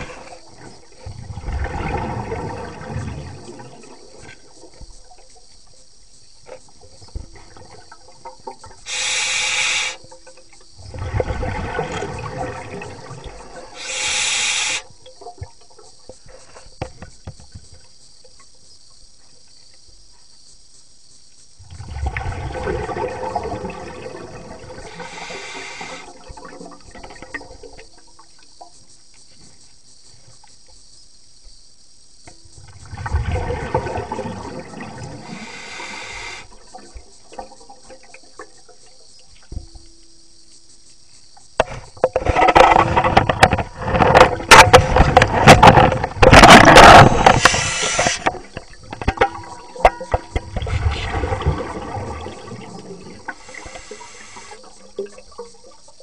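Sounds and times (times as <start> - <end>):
knocks and rushing water: 0.0 - 5.6, 6.2 - 16.0, 32.5 - 39.9, 41.6 - 55.7
underwater bubbling and gurgling: 0.0 - 19.3, 21.6 - 29.4, 32.3 - 40.2, 41.4 - 56.0
faint steady hiss: 0.0 - 56.0.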